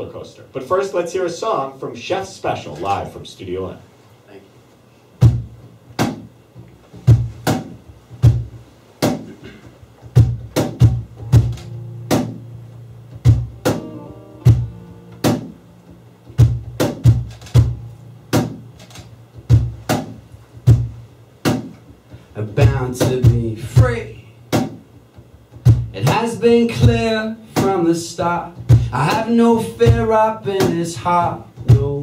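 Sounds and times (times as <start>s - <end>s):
cajon beating: 5.2s - 32.0s
acoustic guitar: 6.9s - 32.0s
bass guitar: 9.8s - 32.0s.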